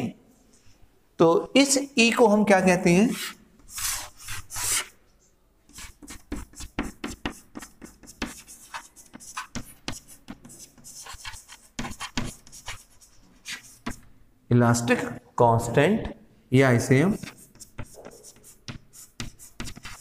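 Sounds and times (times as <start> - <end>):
chalk tapping and scratching: 3.1 - 5.0, 5.7 - 14.1, 16.9 - 20.0.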